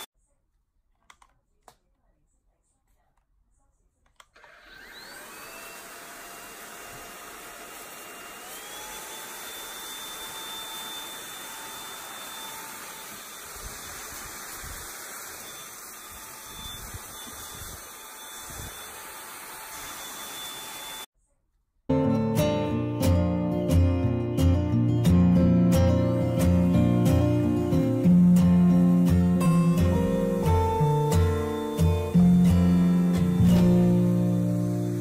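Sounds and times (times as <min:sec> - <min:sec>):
robot vacuum motor whine: 0:04.4 - 0:21.1, 0:28.8 - 0:35.0.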